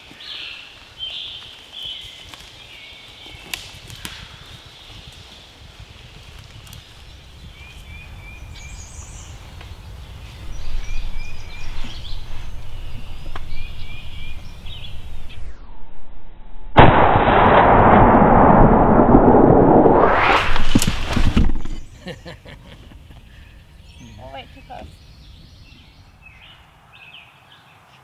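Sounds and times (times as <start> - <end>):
small birds chirping: 0.0 - 15.3, 21.6 - 28.0
wind rumble on microphone: 3.3 - 21.9
loud shotgun blast: 16.8 - 19.6.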